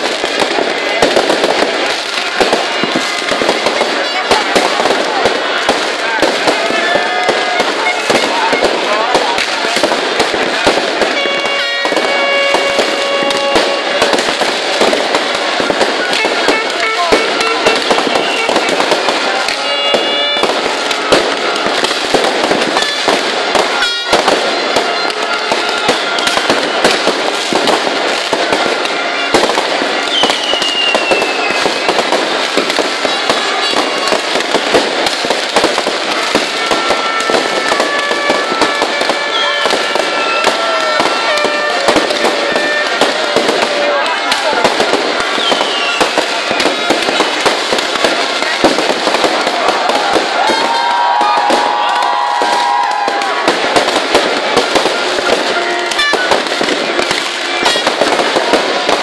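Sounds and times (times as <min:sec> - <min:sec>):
fireworks crackling and popping: 0:00.0 - 0:59.0
falling whistle: 0:30.1 - 0:31.6.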